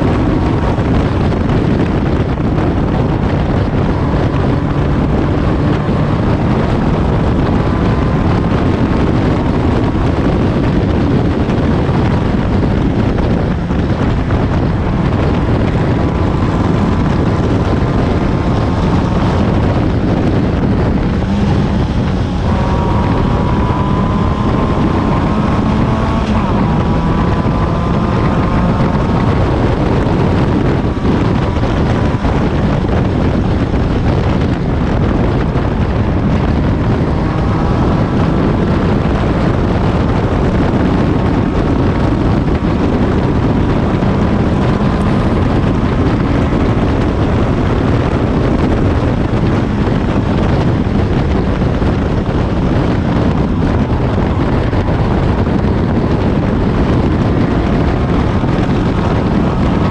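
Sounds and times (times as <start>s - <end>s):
race car engine running hard: 0.0s - 59.9s
wind buffeting on microphone: 0.0s - 59.9s.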